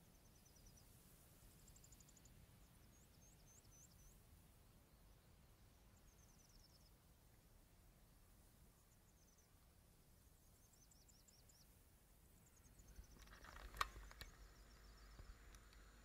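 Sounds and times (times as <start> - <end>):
faint insect chirps: 0.0 - 16.0
small clicks: 12.7 - 16.0.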